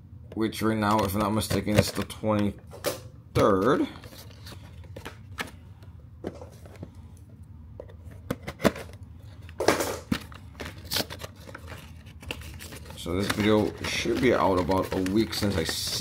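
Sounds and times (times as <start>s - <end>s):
rustling tear: 10.3s - 16.0s.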